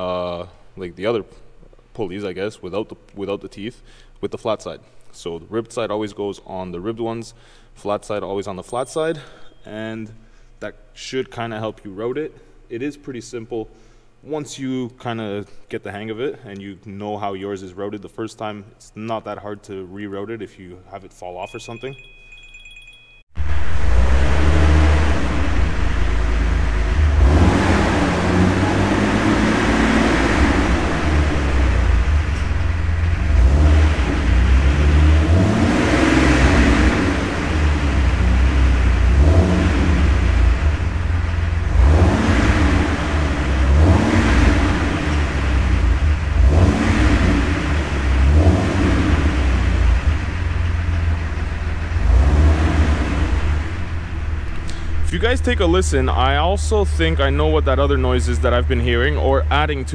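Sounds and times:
car engine rumbling: 23.4s - 59.9s.

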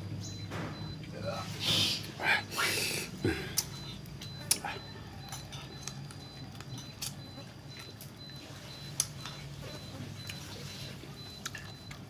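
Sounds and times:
low steady hum: 0.0s - 12.0s
faint high chirp: 0.1s - 1.1s
chewing: 3.2s - 12.0s.

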